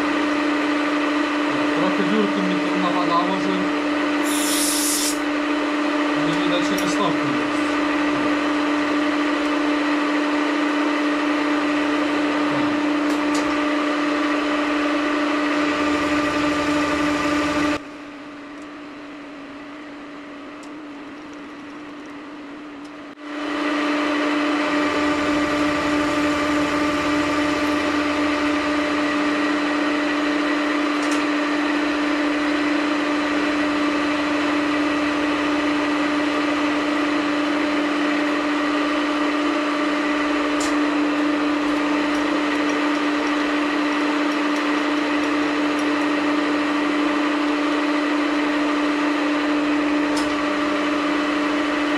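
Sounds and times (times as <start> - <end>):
milling machine whining: 0.0 - 22.1, 22.9 - 51.9
cutter milling steel: 4.2 - 5.2.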